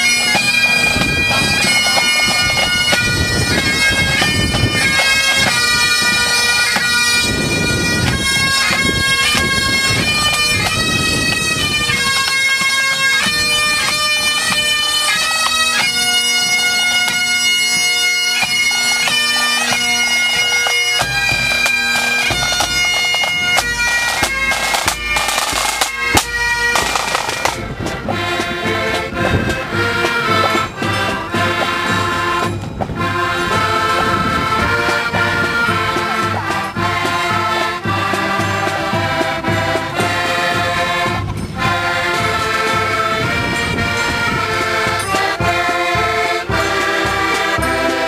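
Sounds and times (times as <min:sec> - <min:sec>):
bagpipes playing marching tune: 0:00.0 - 0:48.0
side drums: 0:00.0 - 0:48.0
bass drum: 0:23.5 - 0:41.8.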